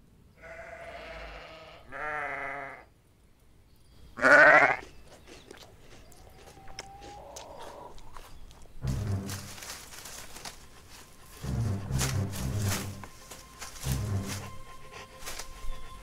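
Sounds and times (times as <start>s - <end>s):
sheep bleating: 0.4s - 2.9s, 4.2s - 4.9s.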